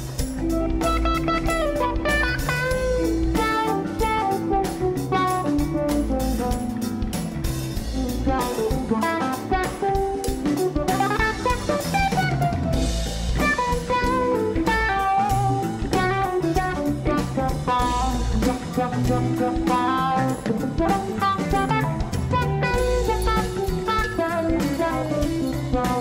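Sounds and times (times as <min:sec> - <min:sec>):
drum kit beat: 0:00.0 - 0:26.0
guitar melody: 0:00.0 - 0:26.0.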